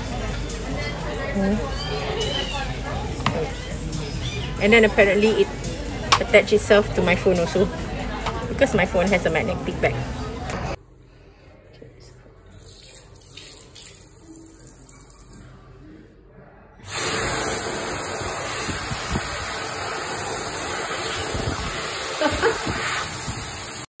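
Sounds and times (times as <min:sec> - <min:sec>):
water running into sink: 0:12.6 - 0:15.5, 0:16.9 - 0:23.9
hand dryer blowing with whine: 0:16.9 - 0:23.9.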